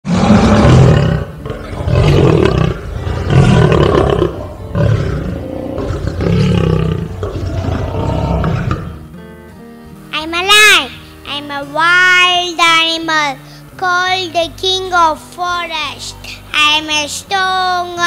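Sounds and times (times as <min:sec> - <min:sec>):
lion roaring: 0:00.1 - 0:09.0.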